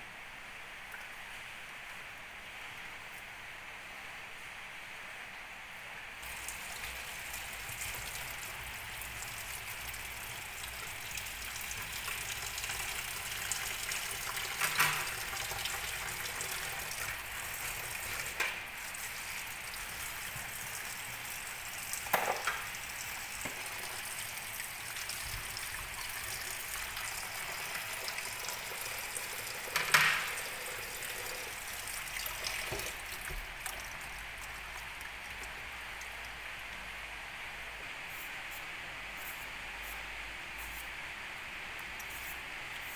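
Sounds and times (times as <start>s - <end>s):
faucet running into sink: 6.2s - 36.3s.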